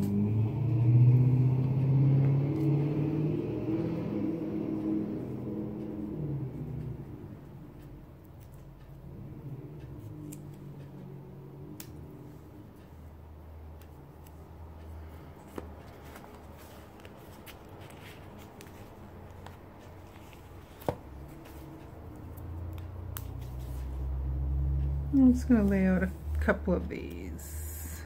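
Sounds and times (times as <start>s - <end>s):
low steady hum: 0.0s - 28.0s
paper rustling: 15.0s - 21.8s
pages flipping tap: 15.4s - 21.6s.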